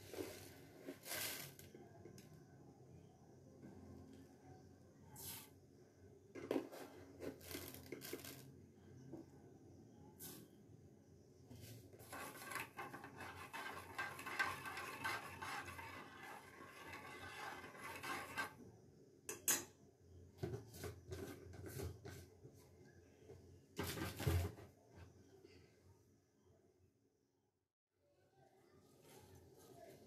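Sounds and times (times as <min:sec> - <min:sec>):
utensil scraping saucepan: 0:11.9 - 0:18.7.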